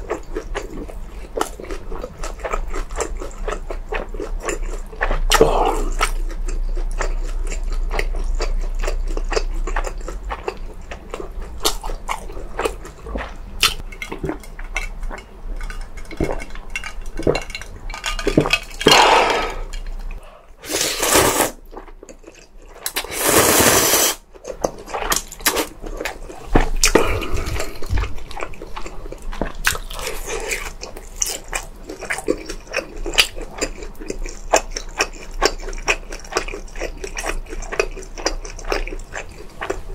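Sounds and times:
chewing and wet mouth sounds: 0:00.0 - 0:20.8, 0:21.6 - 0:23.1, 0:24.2 - 0:39.9
slurping: 0:20.6 - 0:21.7, 0:22.8 - 0:24.2.

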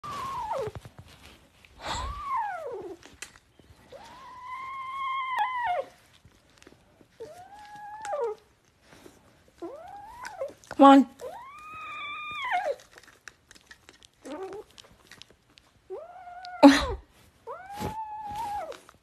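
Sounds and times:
kitten meowing: 0:03.9 - 0:05.9, 0:11.2 - 0:12.8.

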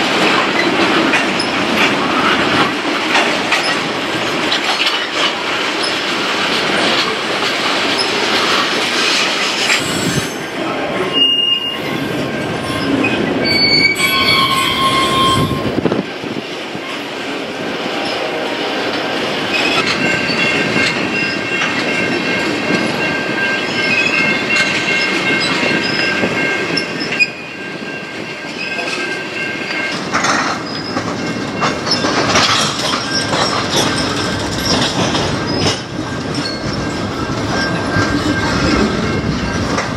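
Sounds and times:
train wheels rumbling and rattling: 0:00.0 - 0:39.9
high-pitched wheel squeals: 0:11.1 - 0:15.8.

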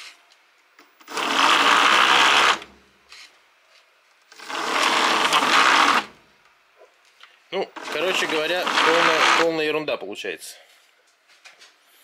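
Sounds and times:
electric motor buzzing whir: 0:00.8 - 0:02.8, 0:04.3 - 0:06.2, 0:07.8 - 0:09.6.

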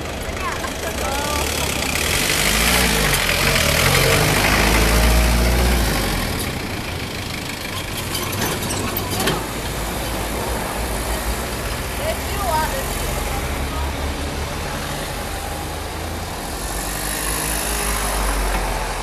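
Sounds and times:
car engine passing: 0:00.0 - 0:19.0
small truck engine passing: 0:00.0 - 0:19.0.

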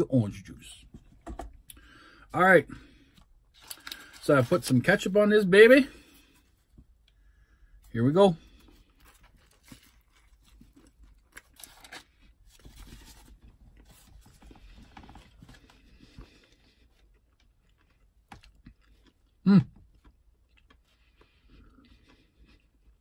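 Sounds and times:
person chewing food: 0:08.5 - 0:12.3, 0:13.8 - 0:23.0.

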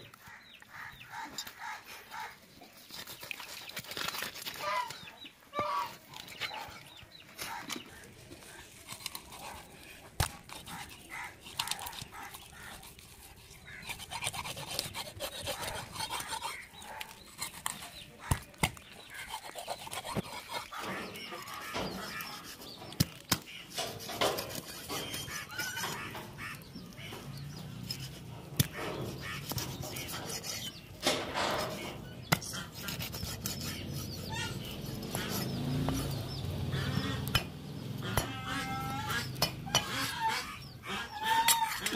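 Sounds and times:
knife scraping through fish: 0:02.8 - 0:04.7, 0:08.4 - 0:18.4, 0:19.0 - 0:30.9, 0:31.6 - 0:35.6.

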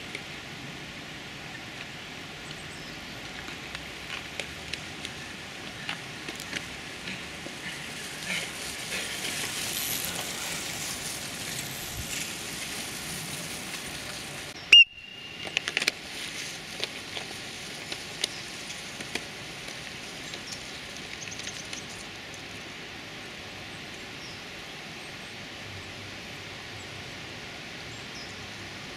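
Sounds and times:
wind-like outdoor rush: 0:00.0 - 0:28.9
loud whistle blast: 0:14.7 - 0:15.6.

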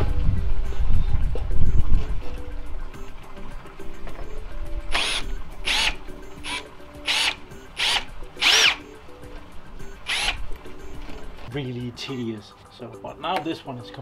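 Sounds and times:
cordless drill motor whining: 0:04.9 - 0:08.8, 0:10.0 - 0:10.4.

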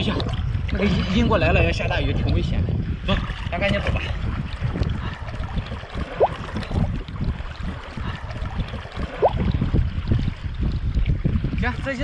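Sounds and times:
wind buffeting microphone: 0:00.0 - 0:12.0
sea water sloshing and splashing: 0:02.8 - 0:12.0.

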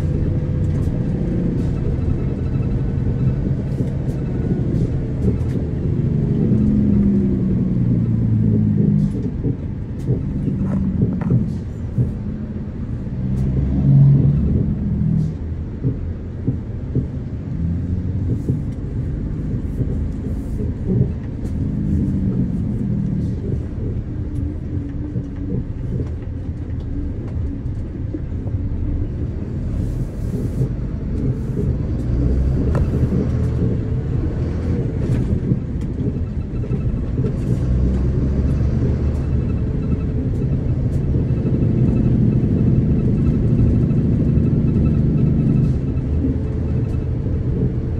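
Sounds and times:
vehicle engine and road noise: 0:00.0 - 0:47.9.

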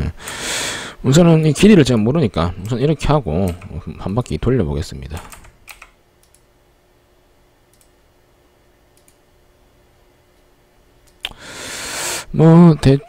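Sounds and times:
computer mouse clicks: 0:05.2 - 0:06.5, 0:07.7 - 0:07.9, 0:09.0 - 0:09.2.

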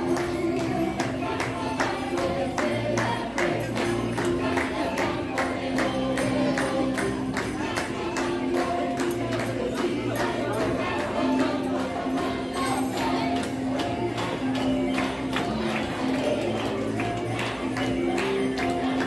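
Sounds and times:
singing: 0:00.0 - 0:19.0.

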